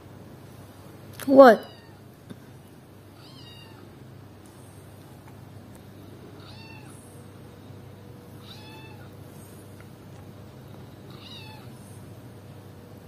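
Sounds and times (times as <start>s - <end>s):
steady low hum: 0.0s - 13.0s
cat meows: 6.4s - 7.0s, 8.4s - 9.1s, 11.1s - 11.8s.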